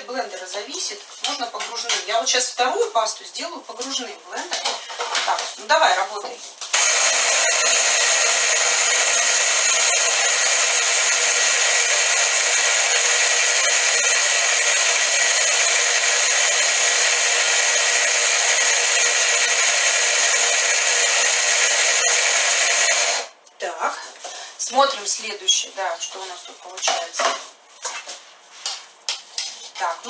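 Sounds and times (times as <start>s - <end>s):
blender motor running: 6.7s - 23.3s.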